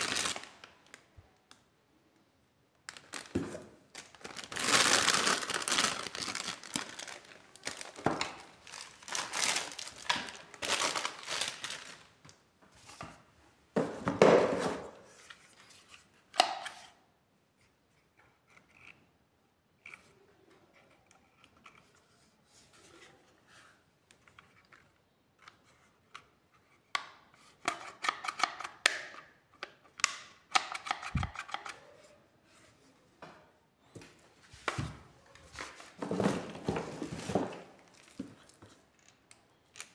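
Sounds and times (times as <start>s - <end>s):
plastic packaging crinkling: 0.0s - 1.1s, 2.9s - 12.2s.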